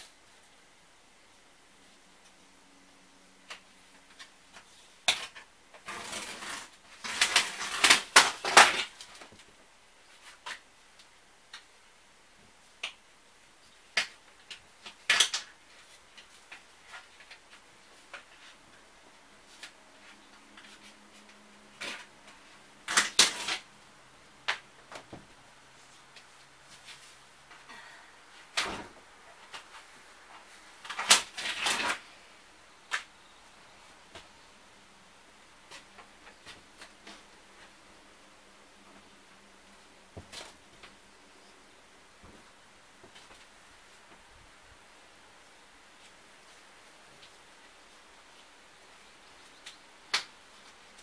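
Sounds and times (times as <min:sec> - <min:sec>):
linoleum tearing and scraping: 0:05.1 - 0:09.3, 0:22.8 - 0:23.7, 0:30.5 - 0:32.2.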